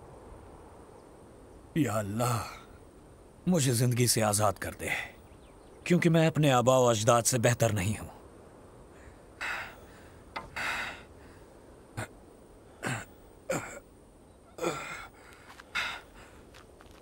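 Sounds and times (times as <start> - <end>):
man gasping and sighing: 9.0 - 11.4, 14.6 - 16.4.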